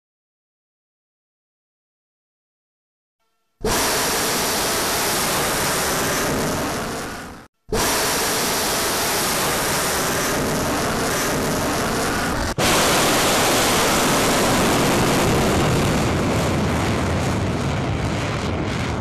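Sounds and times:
rocket motor roaring: 0:03.6 - 0:19.0.

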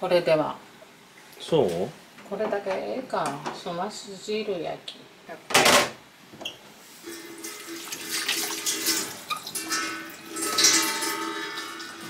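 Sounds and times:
kitchen tap running water: 0:07.0 - 0:12.0.

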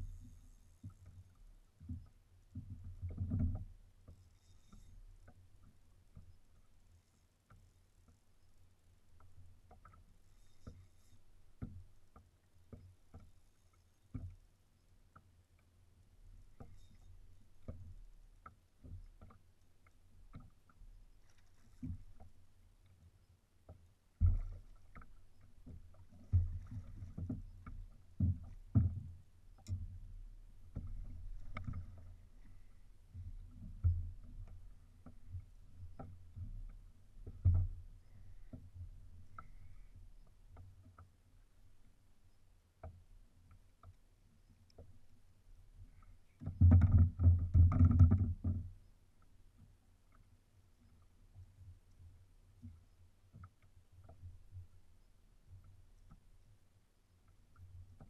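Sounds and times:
water slapping against kayak hull: 0:24.1 - 0:41.0.

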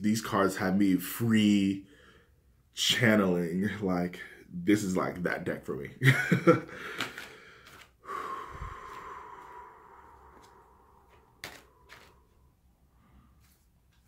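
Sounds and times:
breath blown through pursed lips: 0:07.4 - 0:13.4.

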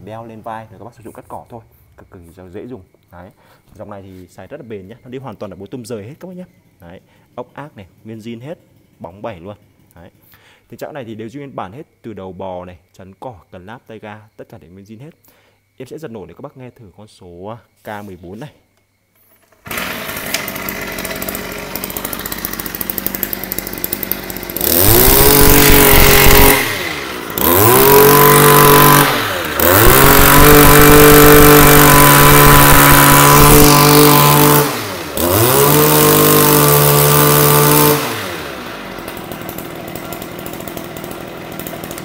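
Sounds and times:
brushcutter engine idling and revving: 0:19.6 - 0:42.0.

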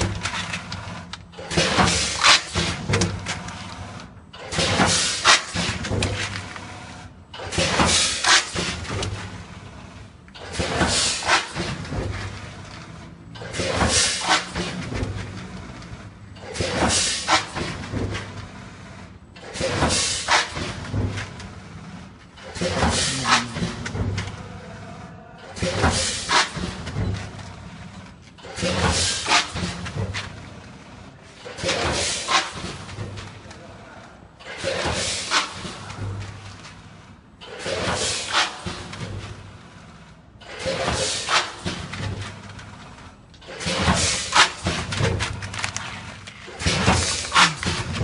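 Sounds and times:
packing machine clattering: 0:00.0 - 0:06.7, 0:07.3 - 0:09.5, 0:10.4 - 0:24.4, 0:40.4 - 0:48.0.

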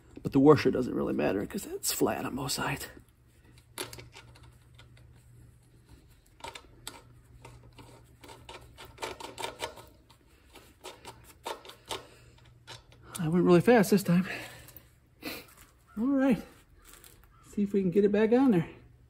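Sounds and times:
metallic clicks of bicycle cogs: 0:06.0 - 0:13.6.

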